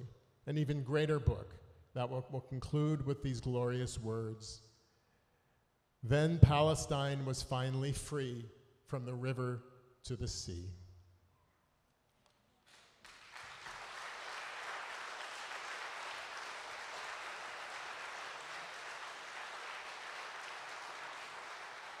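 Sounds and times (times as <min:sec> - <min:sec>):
congregation applauding: 0:12.6 - 0:22.0.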